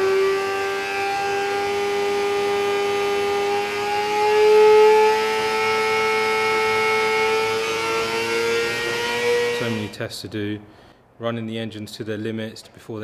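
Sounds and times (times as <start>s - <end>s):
racing car engine at high revs: 0.0s - 10.0s.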